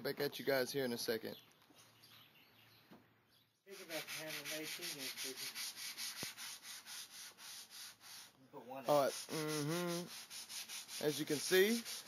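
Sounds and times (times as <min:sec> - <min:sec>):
hand sanding wood: 0:03.7 - 0:12.0.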